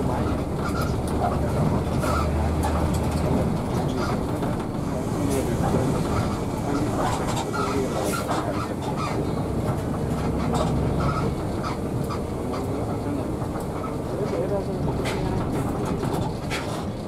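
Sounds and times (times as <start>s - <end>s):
engine and tyres rumbling: 0.0s - 17.0s
light ticks and rattles: 0.0s - 17.0s.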